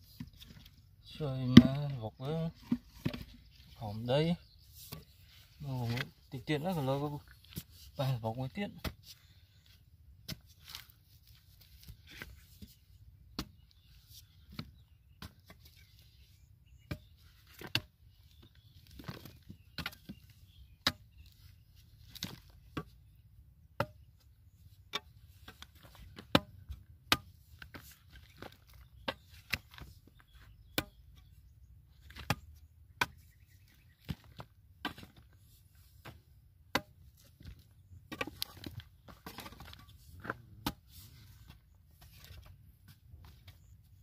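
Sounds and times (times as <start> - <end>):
digging tool chopping dry clay: 5.9 - 11.0, 11.7 - 16.0, 16.7 - 23.0, 23.7 - 24.3, 24.9 - 31.4, 32.0 - 35.3, 36.0 - 41.0.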